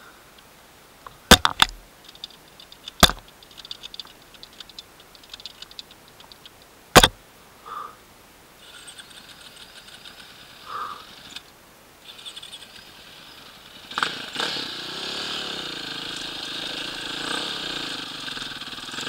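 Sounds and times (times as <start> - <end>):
light clicking and rattling: 0.4 - 7.2
sharp knocks: 1.3 - 1.9, 3.0 - 3.3, 7.0 - 7.2.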